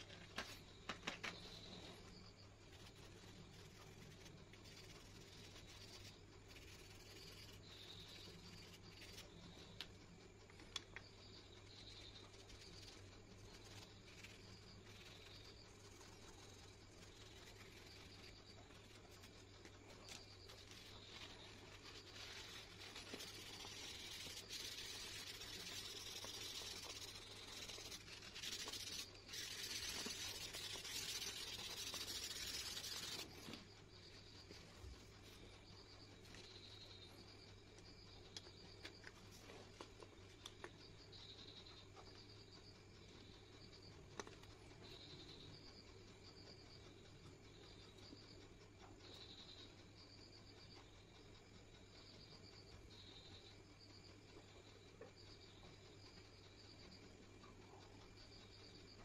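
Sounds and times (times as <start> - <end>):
pencil scratching on paper: 0.0 - 9.8, 11.4 - 35.6
low steady hum: 0.0 - 59.0
pencil clicks: 13.6 - 33.7
hand rubbing on paper: 20.1 - 33.6.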